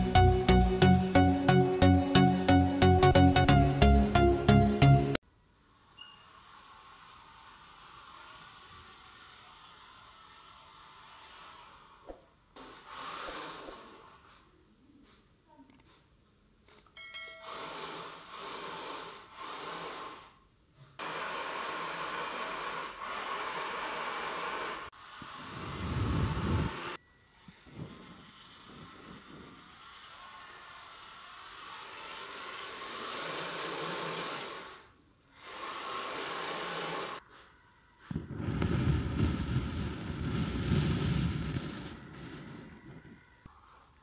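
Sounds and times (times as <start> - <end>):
faint clicks: 15.7 - 16.0.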